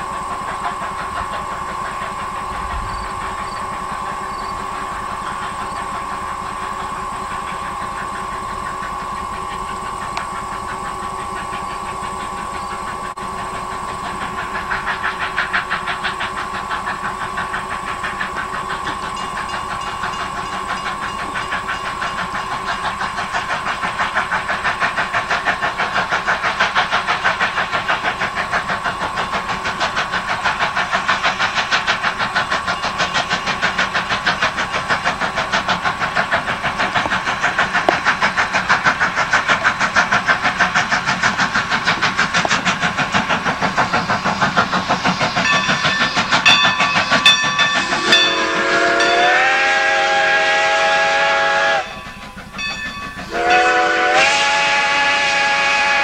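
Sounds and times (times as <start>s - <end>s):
steam locomotive exhaust chuffs: 0.0s - 56.0s.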